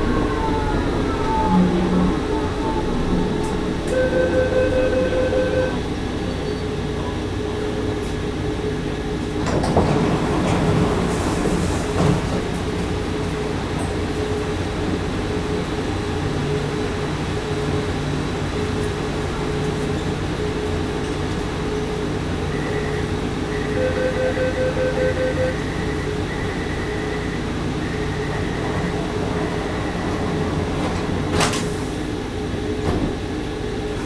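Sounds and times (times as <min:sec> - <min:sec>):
train equipment humming: 0:00.0 - 0:34.0
two-note tone: 0:03.8 - 0:05.9.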